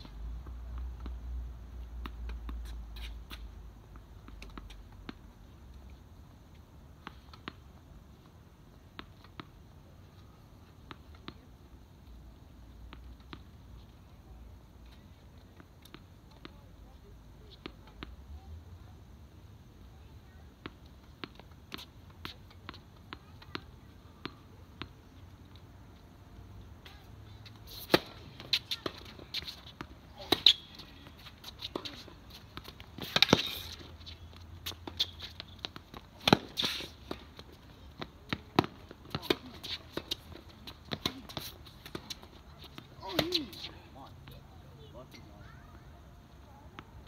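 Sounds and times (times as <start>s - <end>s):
racket striking tennis ball: 27.7s - 33.8s, 34.8s - 37.3s
tennis ball bouncing: 27.7s - 43.7s.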